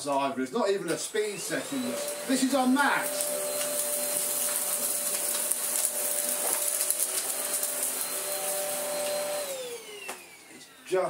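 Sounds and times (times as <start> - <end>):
stick vacuum running on carpet: 1.0 - 11.0.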